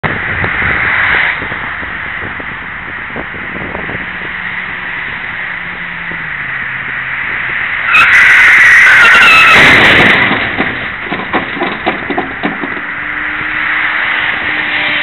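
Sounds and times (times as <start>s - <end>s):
highway traffic noise: 0.0s - 15.0s.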